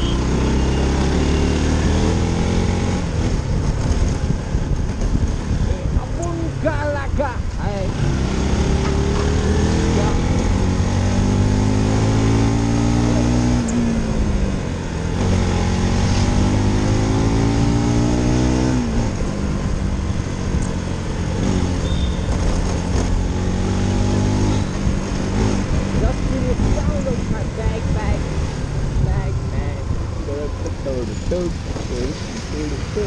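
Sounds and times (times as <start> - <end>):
wind rush on microphone: 3.0 - 11.8, 13.4 - 33.0.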